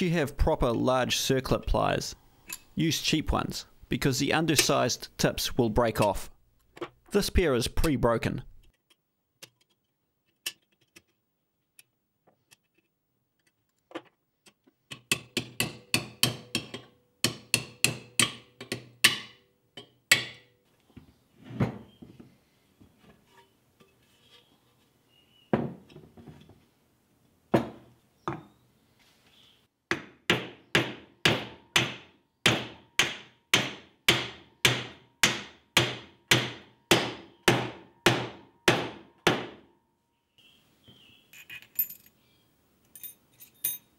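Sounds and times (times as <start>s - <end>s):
hammer striking wooden block: 15.0s - 19.4s, 20.1s - 20.5s, 29.9s - 39.7s.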